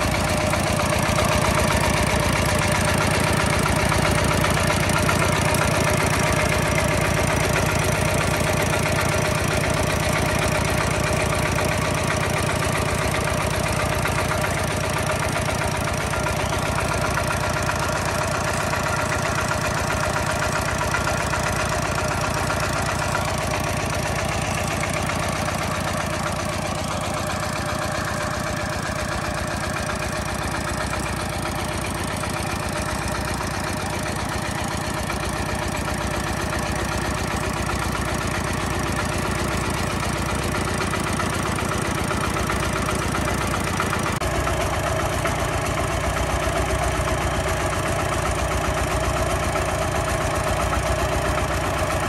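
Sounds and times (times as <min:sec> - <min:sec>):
diesel engine chugging: 0:00.0 - 0:52.0.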